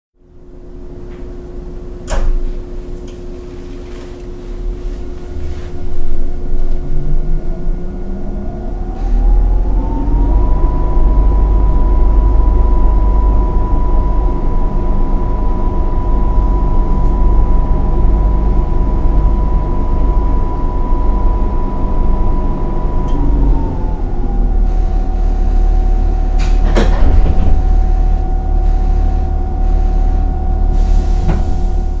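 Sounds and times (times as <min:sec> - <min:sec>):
air conditioner low hum: 0:00.2 - 0:32.0
inverter whine: 0:00.2 - 0:32.0
train door closing thud: 0:02.1 - 0:02.5, 0:26.4 - 0:27.8, 0:30.9 - 0:32.0.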